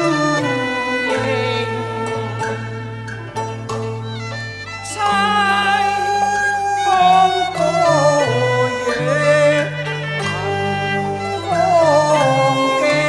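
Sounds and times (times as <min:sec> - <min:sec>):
bowed fiddle melody: 0:00.0 - 0:13.0
plucked-string notes: 0:00.0 - 0:13.0.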